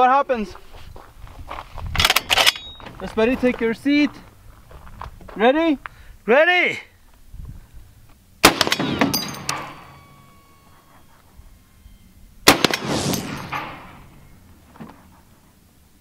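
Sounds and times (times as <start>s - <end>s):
rifle shots with echo: 8.4s - 10.4s, 12.4s - 14.3s.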